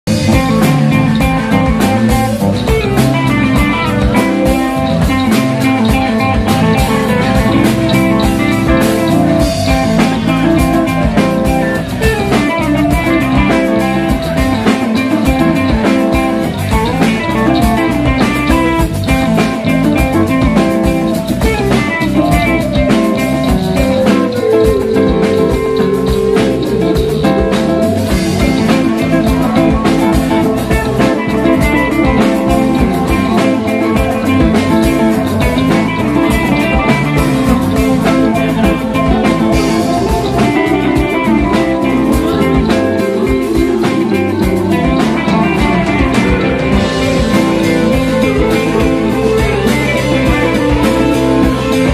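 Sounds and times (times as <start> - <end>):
bass guitar: 0.0 - 51.9
drum kit: 0.0 - 51.9
electric guitar lead: 0.0 - 51.9.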